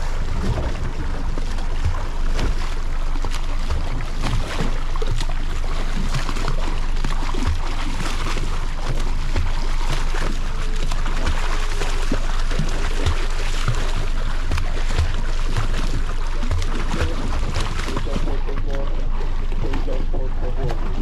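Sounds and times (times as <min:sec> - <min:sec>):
boat motor running: 0:00.0 - 0:21.0
water splashing against hull: 0:00.0 - 0:21.0.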